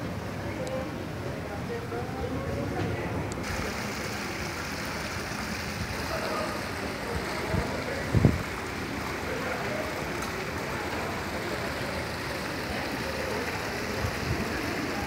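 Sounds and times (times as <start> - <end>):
fountain water splashing: 3.4 - 15.0.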